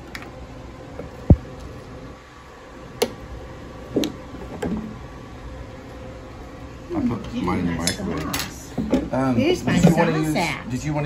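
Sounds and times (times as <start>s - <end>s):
steady background hum: 0.0s - 11.0s.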